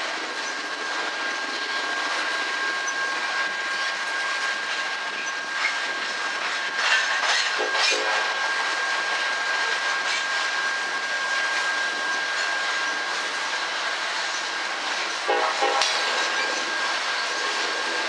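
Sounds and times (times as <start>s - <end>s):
train wheels rolling on rails: 6.4s - 18.0s
thin high tone: 15.3s - 18.0s.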